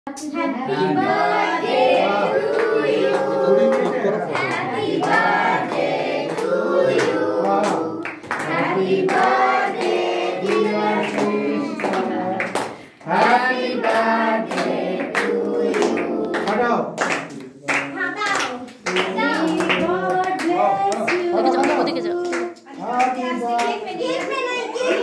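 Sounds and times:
group singing a birthday song: 0.2 - 25.0
hand claps: 6.3 - 12.8, 13.8 - 25.0.

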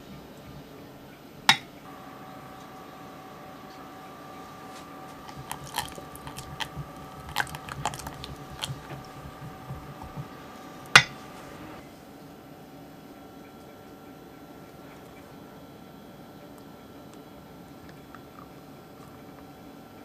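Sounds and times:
faint steady hum: 0.0 - 20.0
utensil scraping glass bowl: 3.6 - 11.8.

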